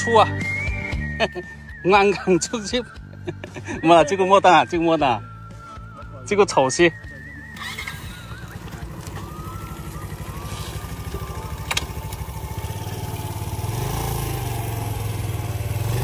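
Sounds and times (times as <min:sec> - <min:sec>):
motorcycle engine idling and revving: 0:00.0 - 0:16.0
sharp click: 0:11.6 - 0:12.2.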